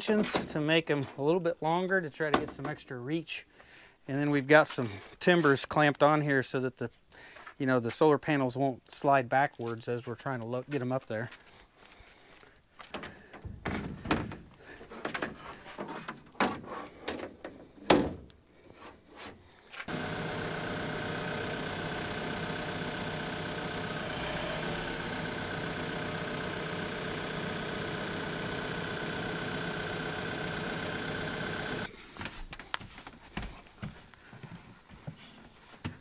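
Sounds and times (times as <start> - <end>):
tractor engine running: 19.9 - 31.9.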